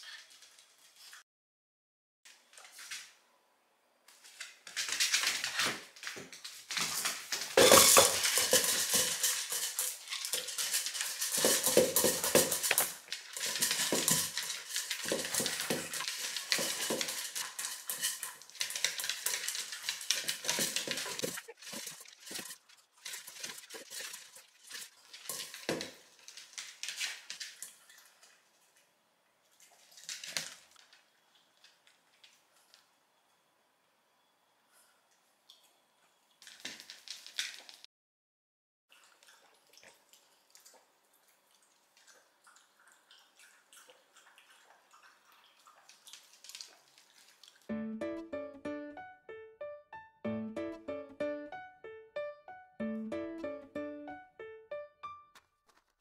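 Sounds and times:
dog crunching kibble: 0:06.8 - 0:28.0
kibble clinking in bowl: 0:07.6 - 0:26.4.

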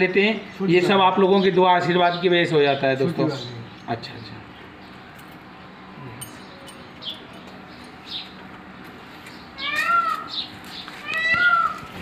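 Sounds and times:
meow-like animal call: 0:09.6 - 0:10.4, 0:11.0 - 0:12.0.

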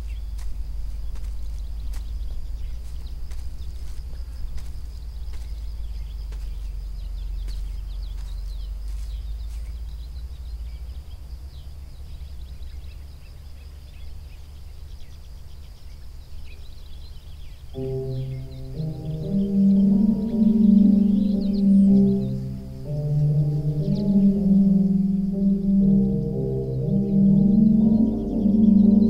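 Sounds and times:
low steady rumble: 0:00.0 - 0:29.0
small birds chirping: 0:00.0 - 0:29.0
ambient music with held tones: 0:17.7 - 0:29.0.

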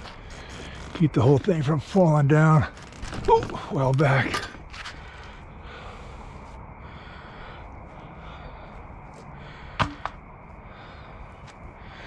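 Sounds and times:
sharp knocks: 0:09.8 - 0:10.2.

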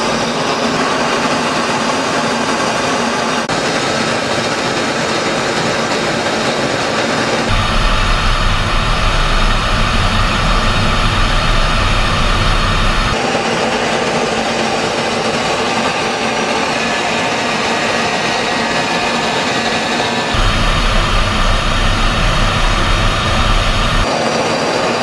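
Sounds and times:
jet engine and rushing air: 0:07.5 - 0:13.3, 0:20.3 - 0:24.1.

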